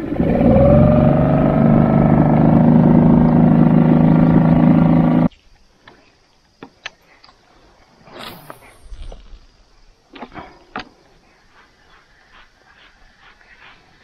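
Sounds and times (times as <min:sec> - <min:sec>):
outboard motor running: 0:00.0 - 0:05.3.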